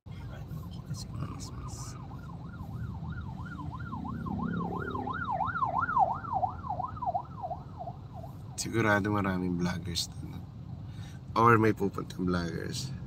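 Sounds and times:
low road rumble: 0:00.1 - 0:13.0
emergency siren yelping: 0:01.2 - 0:08.4.

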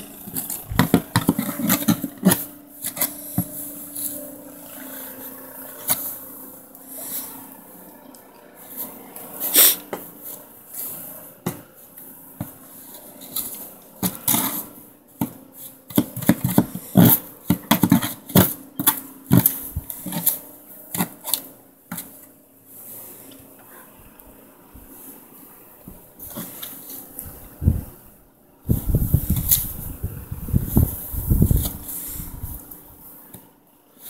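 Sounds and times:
snow shovel scraping on steps: 0:00.1 - 0:04.2, 0:12.4 - 0:22.1.

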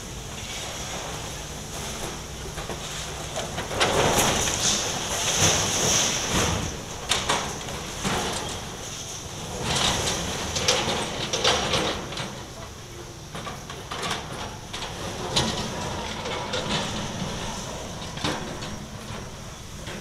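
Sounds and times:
excavator engine running: 0:00.0 - 0:20.0.

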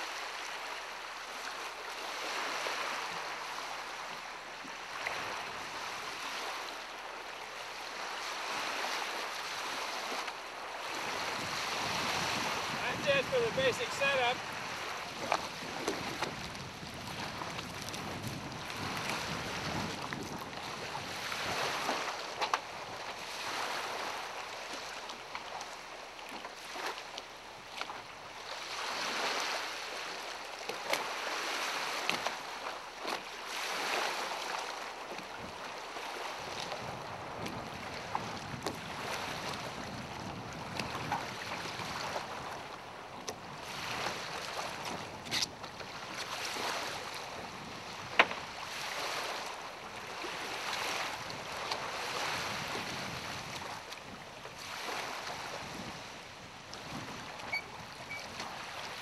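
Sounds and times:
small waves lapping against hull: 0:00.0 - 0:59.0
wind on microphone: 0:10.8 - 0:24.2, 0:35.3 - 0:59.0.

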